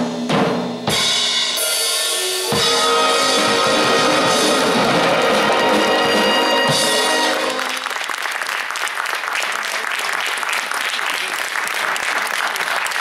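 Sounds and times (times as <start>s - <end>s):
wind band chord: 2.1s - 7.8s
audience applause: 2.6s - 13.0s.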